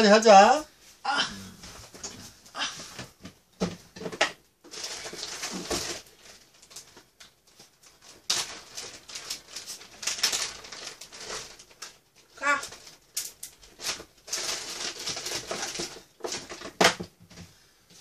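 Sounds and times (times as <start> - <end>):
plastic bag rustling: 4.0 - 16.8.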